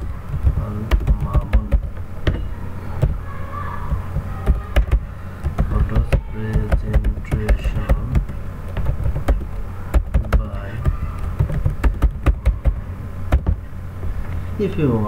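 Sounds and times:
keyboard keys clicking: 0:00.0 - 0:02.4, 0:04.2 - 0:13.7
steady low hum: 0:00.0 - 0:15.0.

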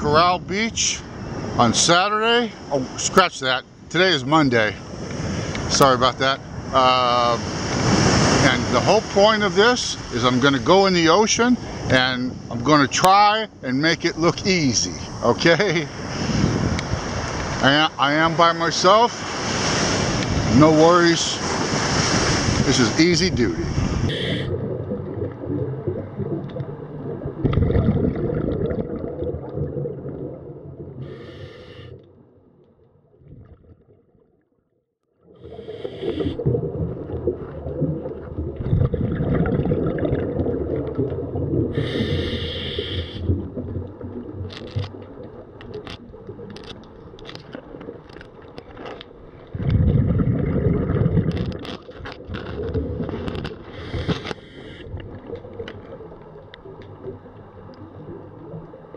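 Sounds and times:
muffled underwater rush: 0:00.0 - 0:34.4, 0:35.2 - 0:58.9
short hissing bursts: 0:31.0 - 0:32.0, 0:41.8 - 0:43.3
clicks and scrapes: 0:51.3 - 0:54.5.

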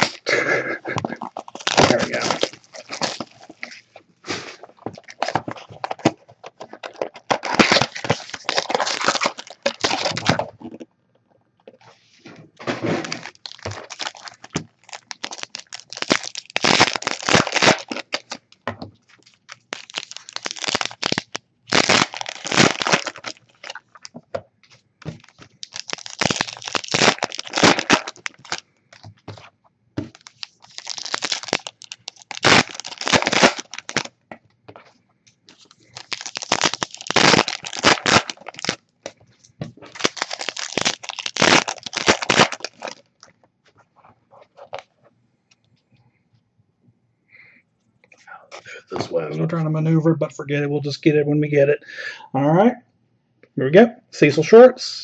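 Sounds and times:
foil wrappers crinkling and tearing: 0:00.0 - 0:10.8, 0:12.8 - 0:24.2, 0:25.0 - 0:34.2, 0:35.5 - 0:43.4.

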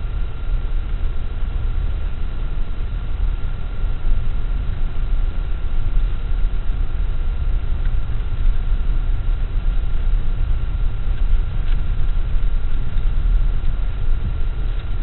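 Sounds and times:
truck engine and tyre rumble: 0:00.0 - 0:15.0
light tick: 0:07.8 - 0:08.5.

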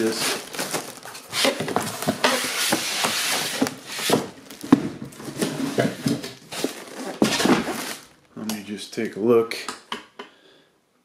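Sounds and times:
plastic film crinkling: 0:00.0 - 0:08.4.

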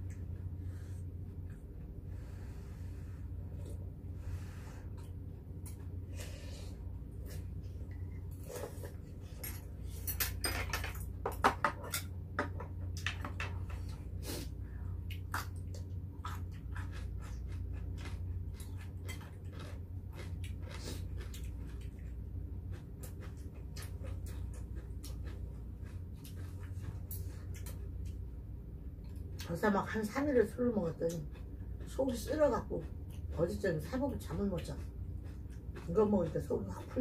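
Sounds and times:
steady low hum: 0:00.0 - 0:37.0
spoons and chopsticks clinking on pots: 0:09.4 - 0:12.1.

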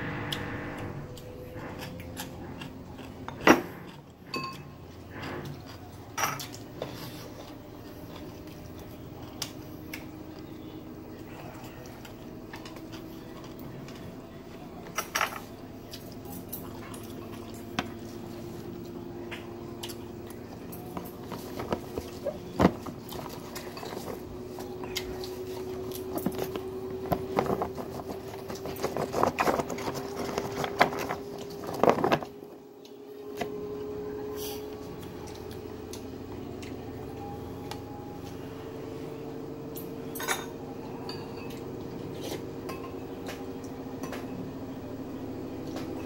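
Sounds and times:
steady hum: 0:00.0 - 0:46.0
utensils clinking against bowls: 0:01.8 - 0:07.2, 0:39.8 - 0:44.3.

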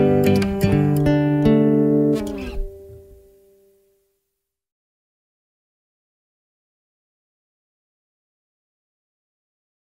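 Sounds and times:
guitar note ringing out: 0:00.0 - 0:03.8.

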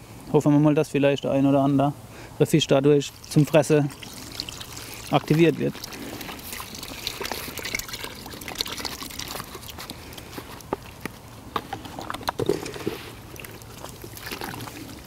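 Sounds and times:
milk pouring into a tub: 0:03.2 - 0:11.0, 0:11.8 - 0:15.0.

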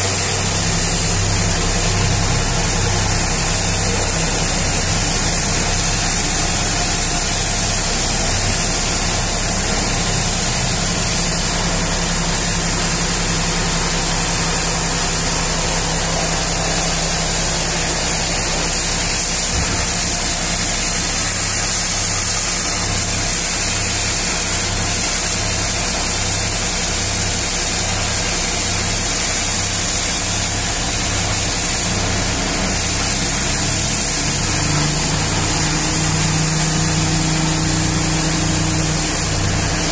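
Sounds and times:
pressure washer spraying: 0:00.0 - 0:39.9
engine droning: 0:30.9 - 0:39.9.

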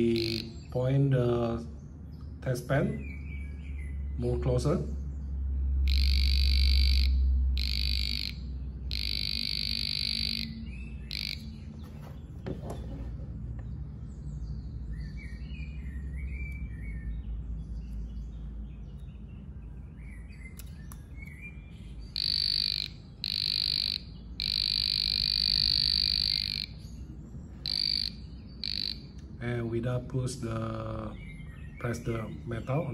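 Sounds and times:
high-pitched buzzer bursts: 0:00.0 - 0:00.6, 0:05.9 - 0:11.5, 0:22.2 - 0:26.8, 0:27.6 - 0:29.1.

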